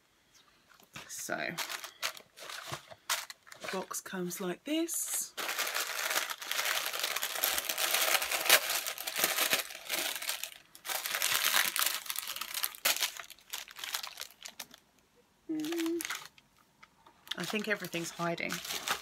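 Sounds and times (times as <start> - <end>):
tissue paper crinkling: 1.5 - 4.0, 5.1 - 14.8, 15.6 - 16.3, 17.4 - 19.0.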